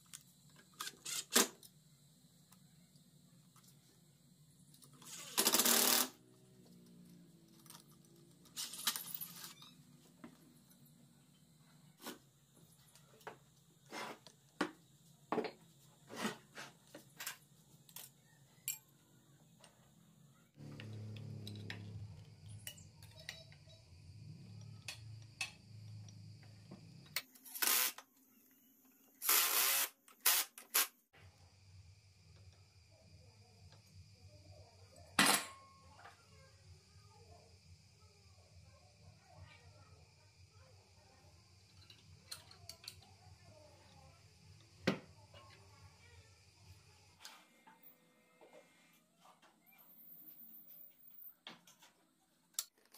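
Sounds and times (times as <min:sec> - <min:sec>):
cordless drill driving screw: 0:29.2 - 0:30.9.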